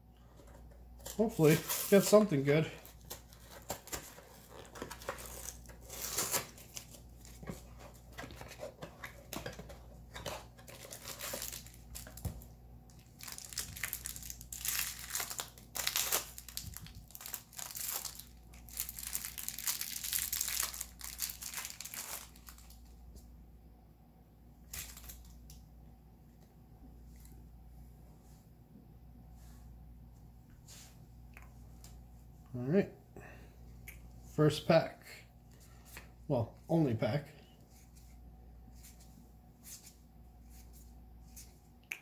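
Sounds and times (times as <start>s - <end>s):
plastic wrapping crinkling and tearing: 1.0s - 22.8s, 24.7s - 25.4s.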